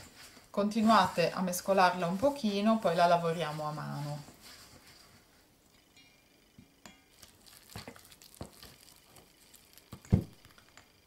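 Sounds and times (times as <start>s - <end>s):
spatula scraping bowl: 0.0s - 5.1s.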